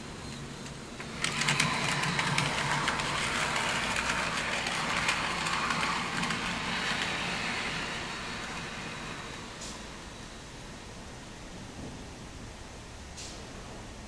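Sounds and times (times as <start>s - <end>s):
wheels clicking over rail joints: 0.6s - 9.9s
model tram motor whirring: 1.0s - 10.3s.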